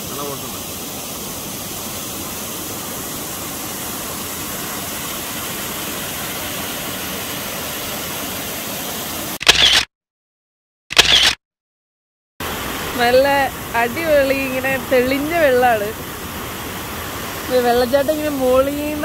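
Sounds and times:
waterfall rushing: 0.0 - 9.4, 12.4 - 19.0
camera shutter clicks: 9.4 - 9.9, 10.9 - 11.4.

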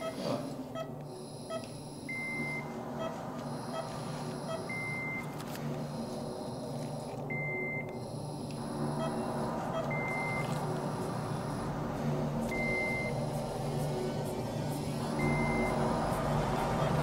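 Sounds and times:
long steady beep: 0.0 - 5.3, 5.9 - 11.8, 12.5 - 13.4, 15.0 - 16.2
low hum: 0.0 - 17.0.

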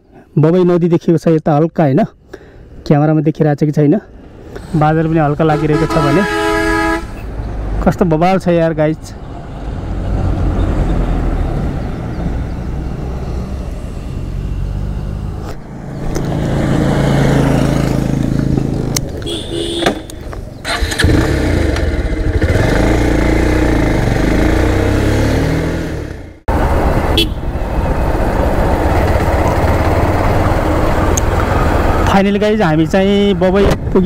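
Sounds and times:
motorcycle engine running: 13.3 - 32.0.

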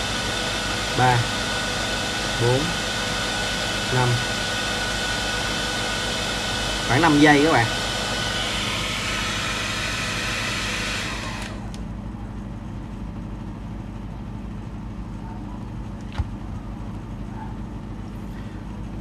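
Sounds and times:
hair dryer blowing: 0.0 - 11.8.

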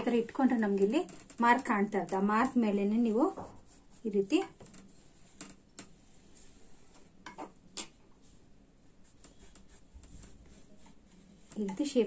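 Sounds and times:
marking tool scratching canvas: 8.9 - 12.0.

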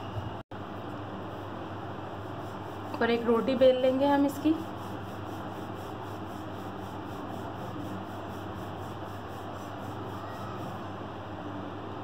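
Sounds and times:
rolling pin rolling dough: 1.3 - 11.1.

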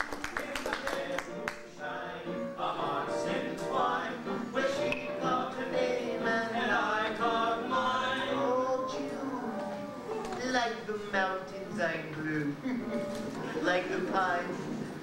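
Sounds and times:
people singing in harmony: 0.1 - 10.3.

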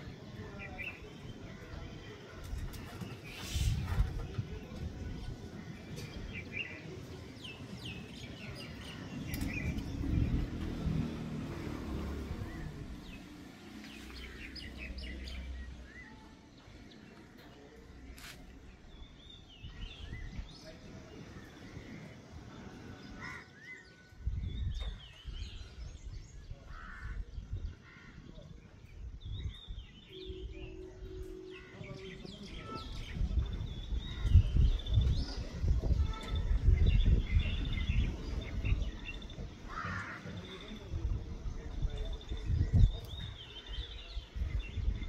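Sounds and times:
wind rumbling on microphone: 0.0 - 16.0, 18.0 - 45.0
small birds chirping: 0.0 - 45.0.

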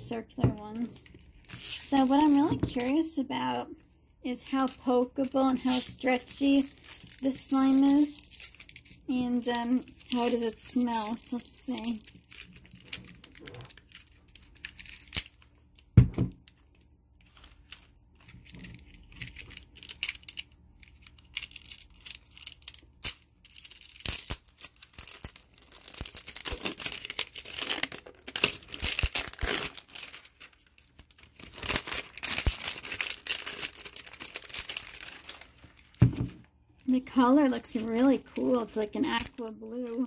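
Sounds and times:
plastic wrapping crinkling: 0.6 - 40.0.

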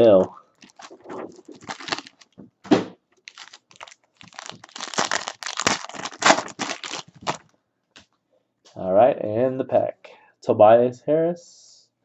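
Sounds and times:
foil wrapper tearing and crinkling: 0.0 - 2.4, 3.2 - 7.4.

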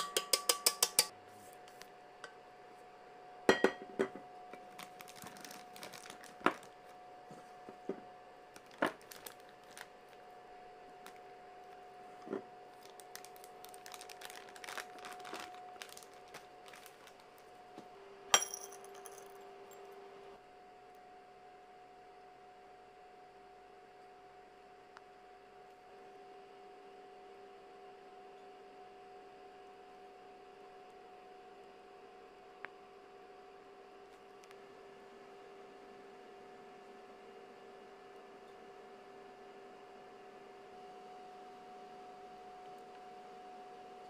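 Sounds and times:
spatula clinking metal bowl: 0.0 - 1.1
faint steady hum: 0.0 - 44.0
plastic piping bag rustling: 4.6 - 7.6, 8.5 - 17.6.

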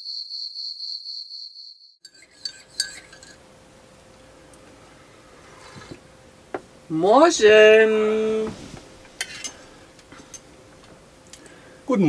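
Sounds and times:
crickets chirping: 0.0 - 2.0
crockery and cutlery clinking: 2.0 - 3.4.

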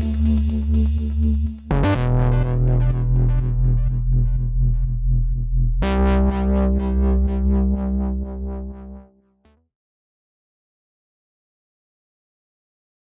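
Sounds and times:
electronic music: 0.0 - 9.2.

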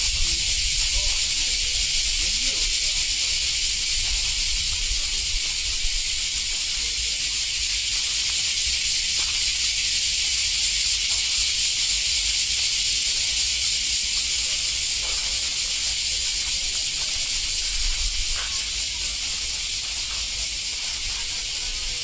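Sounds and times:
steady high-pitched hiss: 0.0 - 22.0.

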